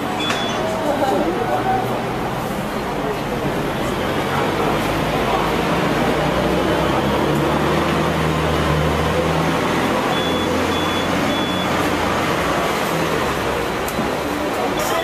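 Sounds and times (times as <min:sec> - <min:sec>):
tram rumbling: 0:00.0 - 0:15.0
short high beeps: 0:00.2 - 0:00.7, 0:10.1 - 0:11.8.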